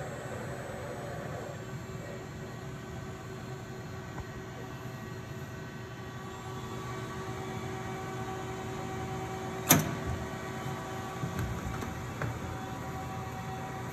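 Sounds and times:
industrial robot hum: 0.0s - 3.1s.

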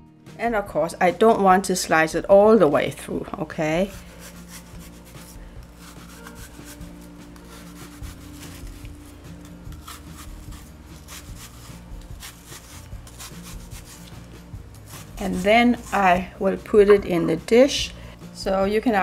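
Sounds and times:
knife slicing apple: 3.9s - 17.4s.

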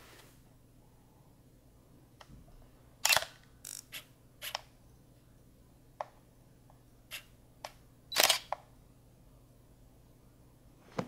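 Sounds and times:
camera shutter clicking: 8.1s - 8.6s.

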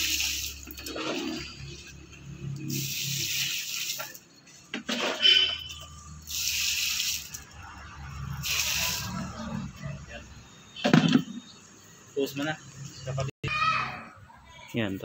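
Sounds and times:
water pouring onto soil: 0.0s - 1.9s, 2.6s - 4.3s, 6.2s - 7.6s, 8.4s - 9.2s.

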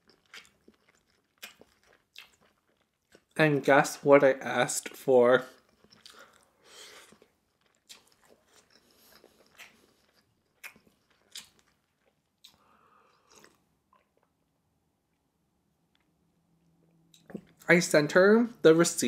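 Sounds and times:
close chewing: 0.0s - 3.4s, 4.8s - 14.3s
wet mouth clicks: 5.8s - 11.6s, 12.4s - 14.1s.

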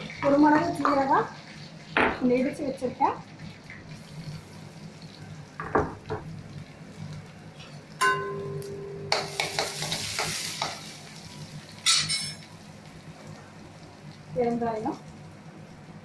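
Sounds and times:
spices sizzling in hot oil: 0.0s - 16.0s
ringing metal clink: 11.9s - 12.4s.

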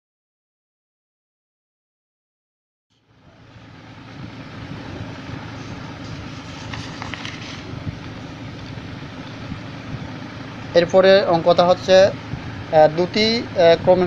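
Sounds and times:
low rumble and hiss: 3.0s - 14.0s
faint clicks or rustles: 6.0s - 7.7s.

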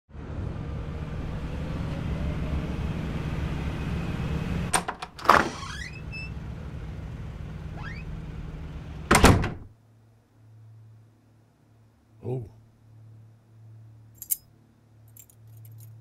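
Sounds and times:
low rumbling drone: 0.1s - 4.7s
rising sweep: 0.1s - 4.7s.

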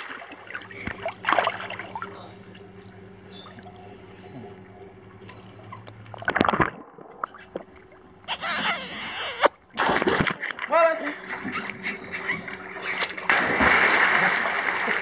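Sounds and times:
steady low hum: 0.0s - 15.0s
water splashing and sloshing: 0.0s - 15.0s
muffled underwater sound: 0.4s - 9.5s.

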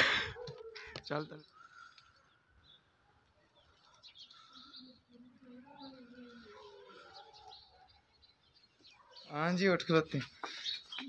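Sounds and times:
faint bird chirps: 0.8s - 9.4s.

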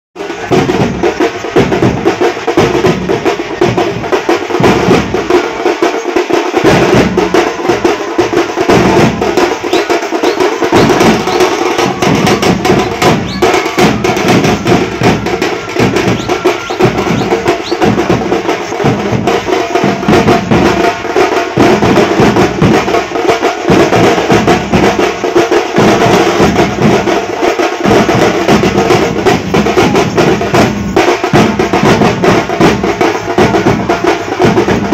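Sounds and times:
drum band playing: 0.2s - 34.9s.

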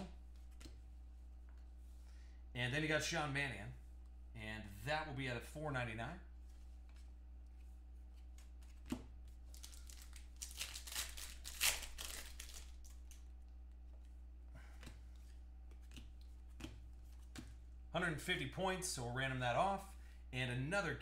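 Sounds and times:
wrapper tearing and crinkling: 9.5s - 13.2s
cards clicking: 15.7s - 17.5s.

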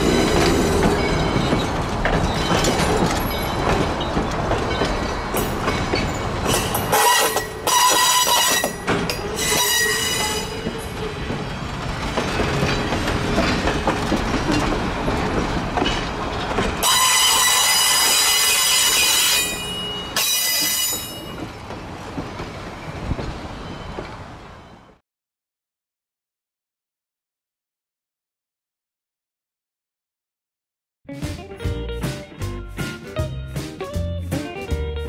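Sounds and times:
steam train rumbling: 0.0s - 24.8s.

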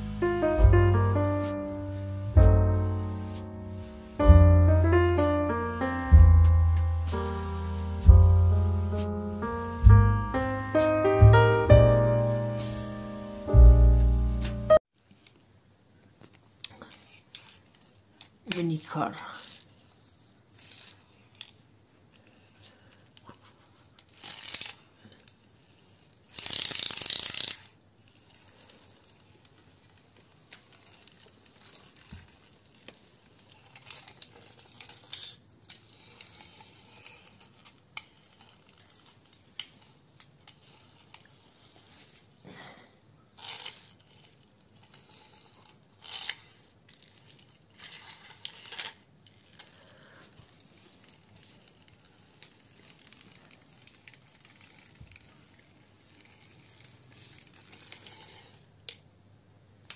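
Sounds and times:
toy car wheels rolling: 16.2s - 42.5s, 43.3s - 59.1s.

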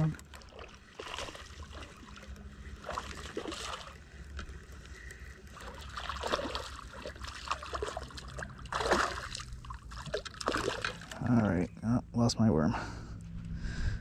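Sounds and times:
fish splashing in water: 0.0s - 11.2s.

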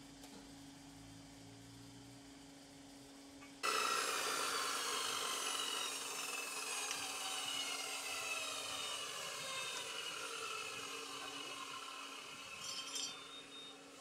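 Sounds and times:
motor tool whirring down: 3.6s - 13.9s.

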